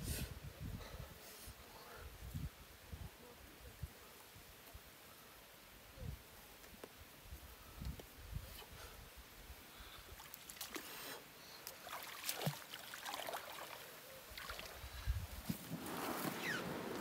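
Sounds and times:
water sounds: 10.1s - 15.1s.

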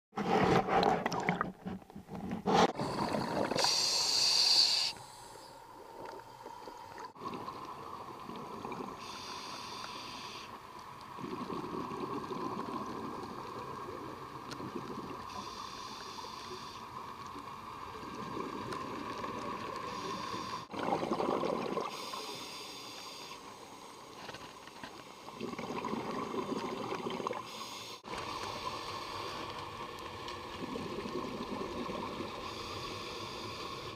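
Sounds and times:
regulator bubbling exhale: 0.6s - 5.0s, 19.9s - 22.2s
regulator rushing inhale: 2.4s - 5.6s, 9.0s - 10.6s, 15.3s - 17.0s, 19.9s - 20.7s, 21.9s - 23.6s, 27.5s - 29.6s, 32.4s - 33.9s.

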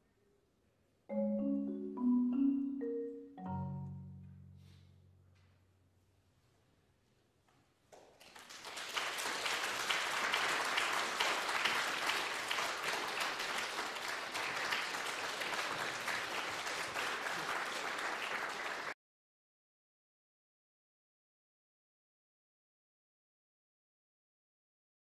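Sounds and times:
audience applause: 8.0s - 19.0s.

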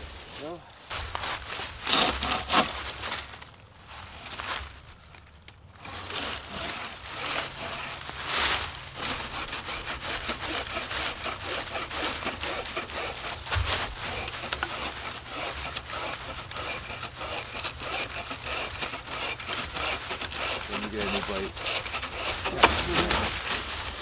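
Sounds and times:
bow saw rasping through log: 1.8s - 2.8s, 5.8s - 24.0s
dull thump: 13.5s - 14.0s, 22.5s - 23.3s.

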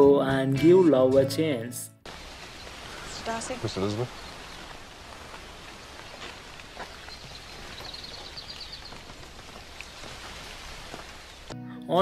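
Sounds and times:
outdoor ambience hiss: 2.1s - 11.6s.

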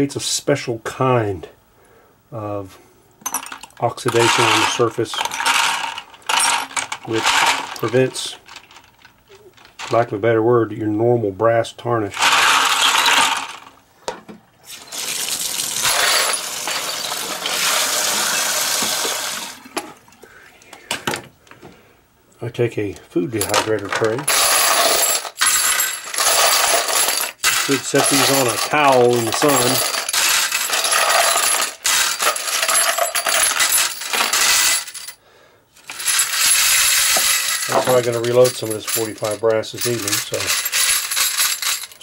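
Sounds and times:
brass cases clinking: 3.2s - 9.0s, 15.8s - 17.7s, 23.4s - 35.2s, 35.8s - 42.0s
water pouring into a sink: 14.7s - 19.6s.

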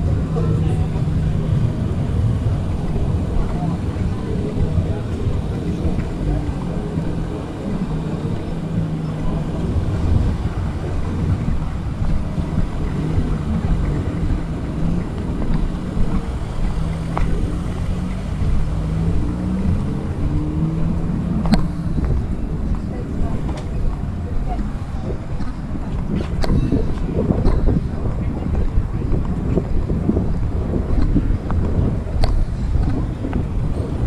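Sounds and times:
engines rumbling past: 0.0s - 34.0s
wind on microphone: 0.0s - 34.0s.

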